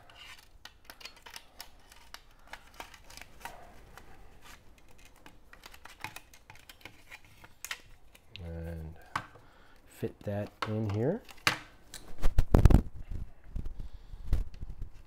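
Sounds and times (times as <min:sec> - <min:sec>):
plastic pieces clicking and tapping: 0:00.1 - 0:04.1, 0:04.7 - 0:08.5.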